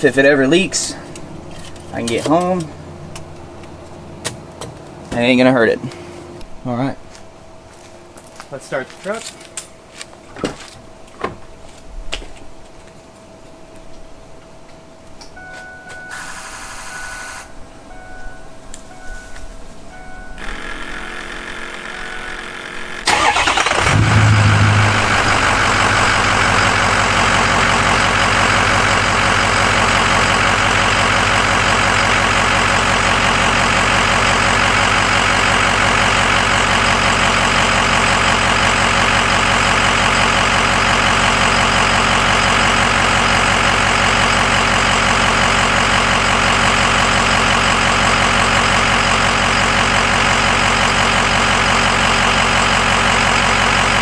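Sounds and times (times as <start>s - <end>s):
diesel engine starting and idling: 19.9s - 54.0s.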